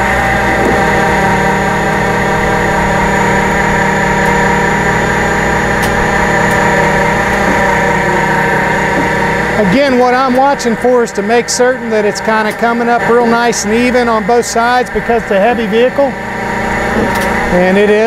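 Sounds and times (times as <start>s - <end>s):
truck engine running: 0.0s - 18.0s
winch pulling: 0.0s - 18.0s.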